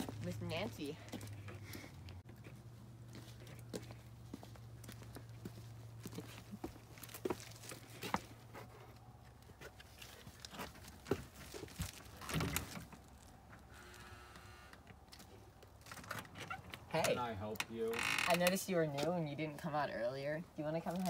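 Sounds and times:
faint footsteps: 0:00.0 - 0:12.2
storm door creaking: 0:17.9 - 0:18.5.

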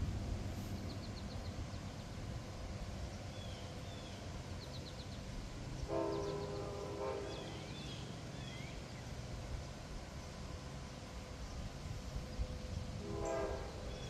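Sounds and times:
birds chirping: 0:00.7 - 0:14.0
distant locomotive air horn: 0:05.8 - 0:08.8, 0:12.9 - 0:14.0.

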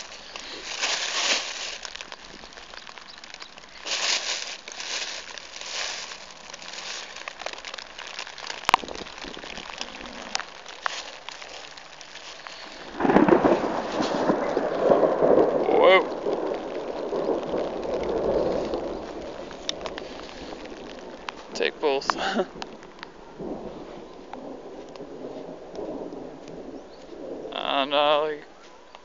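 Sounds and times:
plastic bag rustling: 0:00.0 - 0:23.0.

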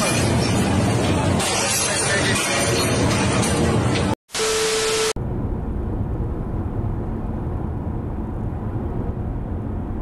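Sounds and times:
car engine and road rumble: 0:05.2 - 0:10.0.

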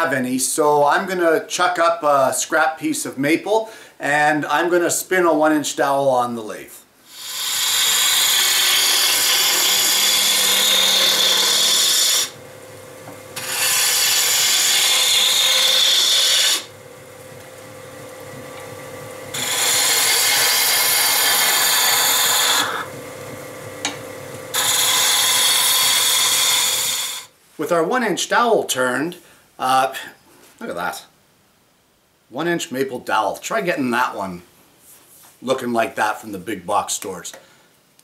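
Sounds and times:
turning tool cutting wood: 0:07.1 - 0:27.3
wood lathe humming: 0:07.1 - 0:27.3.

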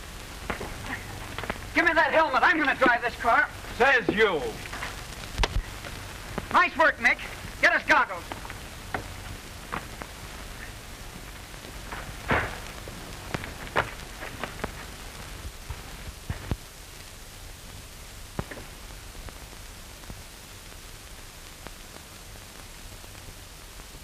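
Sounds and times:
crackles and pops: 0:00.0 - 0:24.0
film soundtrack hiss: 0:00.0 - 0:24.0.

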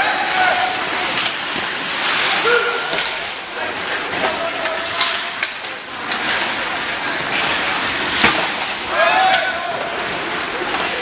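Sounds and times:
people shouting: 0:00.0 - 0:01.0, 0:02.3 - 0:03.0, 0:08.8 - 0:10.0
hockey sticks and puck clacking: 0:00.0 - 0:11.0.

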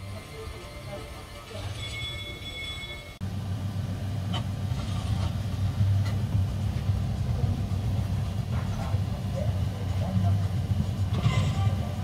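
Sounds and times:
low steady rumble: 0:03.2 - 0:12.0.

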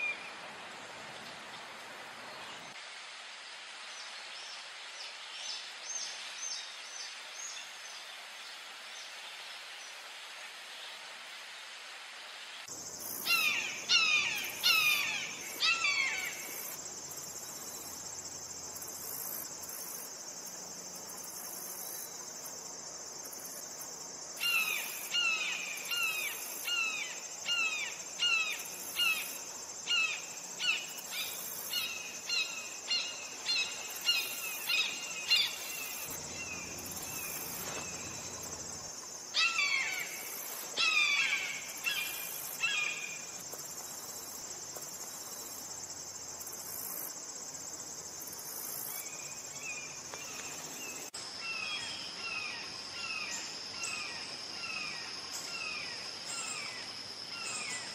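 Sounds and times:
high insect drone: 0:12.6 - 0:57.9.

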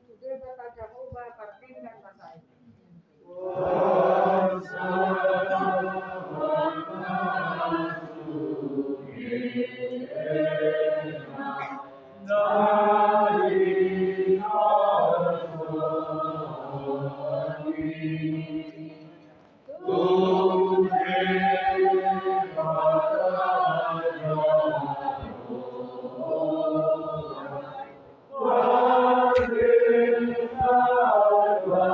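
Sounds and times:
group singing a hymn: 0:03.2 - 0:31.9.

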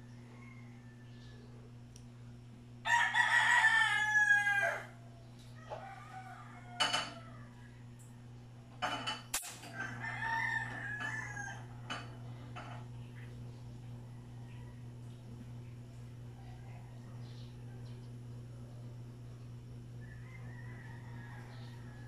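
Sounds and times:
rooster crowing: 0:00.0 - 0:01.6, 0:02.8 - 0:08.0, 0:09.7 - 0:12.2, 0:20.0 - 0:22.0
steady low hum: 0:00.0 - 0:22.0.

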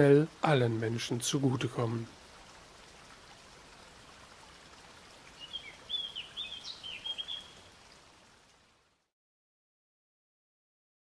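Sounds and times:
stream rushing: 0:00.0 - 0:08.8
bird twittering chirps: 0:05.3 - 0:07.6.

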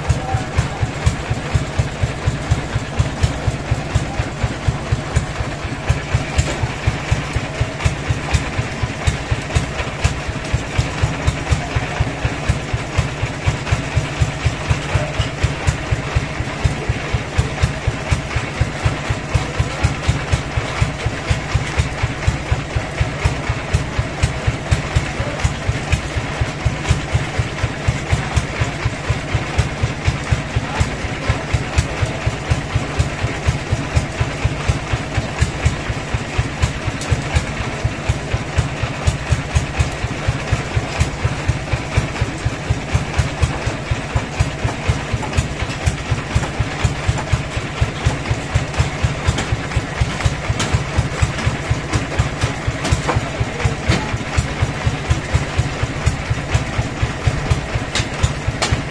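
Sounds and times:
sawmill engine idling: 0:00.0 - 0:58.9.

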